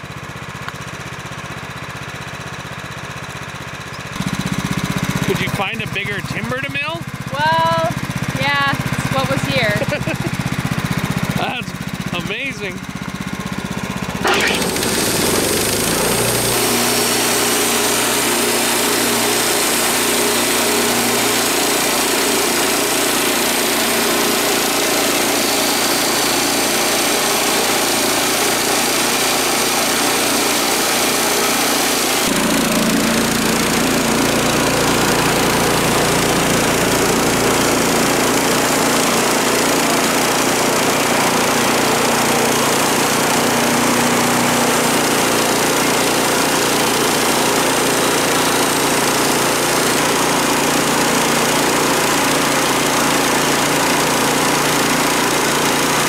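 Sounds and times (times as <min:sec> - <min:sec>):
small engine running under load: 0:00.0 - 0:56.0
band saw blade cutting log: 0:14.2 - 0:56.0.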